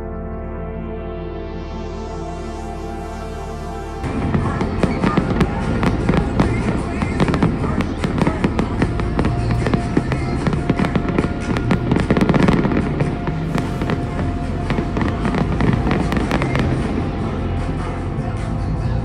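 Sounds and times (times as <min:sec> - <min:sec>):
music playing: 0:00.0 - 0:19.0
fireworks bangs and crackles: 0:04.0 - 0:19.0.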